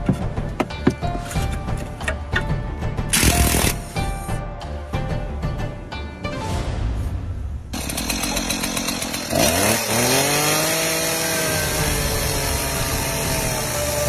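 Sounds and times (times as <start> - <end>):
chainsaw revving: 3.2 - 3.8, 7.7 - 14.0.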